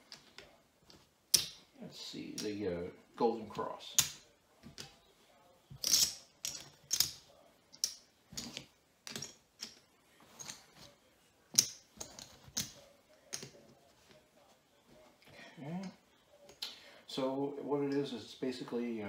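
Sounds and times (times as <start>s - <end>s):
poker chips clacking: 5.8s - 7.2s.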